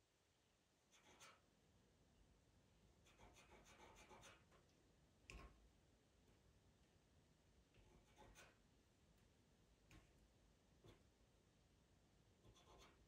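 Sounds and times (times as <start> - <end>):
pencil scratching on paper: 0.9 - 1.5, 3.0 - 4.6, 7.8 - 8.6, 12.4 - 13.0.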